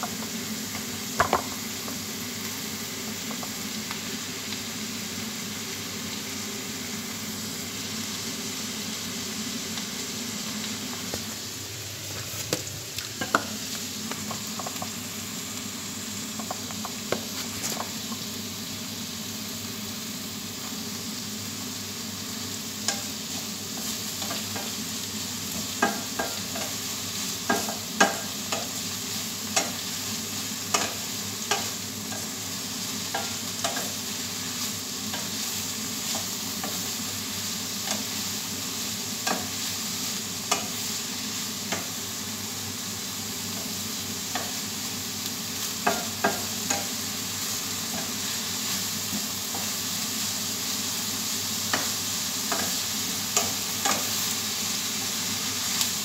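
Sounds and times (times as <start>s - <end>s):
vegetables sizzling in frying pan: 0.0s - 56.0s
spatula knocking against pan: 45.8s - 46.9s.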